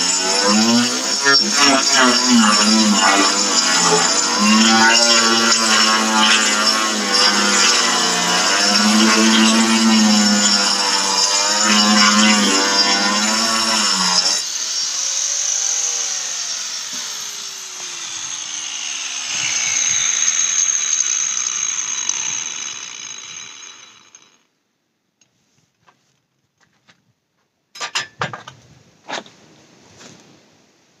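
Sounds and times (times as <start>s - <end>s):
angle grinder winding down: 0.0s - 24.4s.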